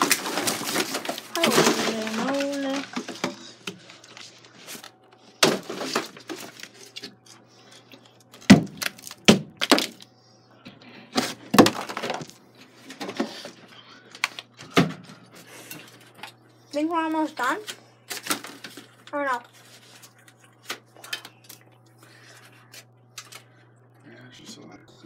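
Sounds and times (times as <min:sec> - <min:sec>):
crunch of breaking plaster: 0:08.4 - 0:10.1.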